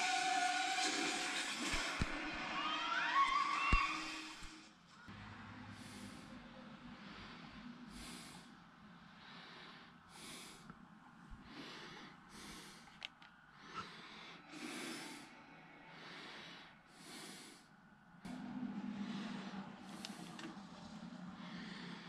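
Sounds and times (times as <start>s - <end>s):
faint breathing: 5.4s - 22.0s.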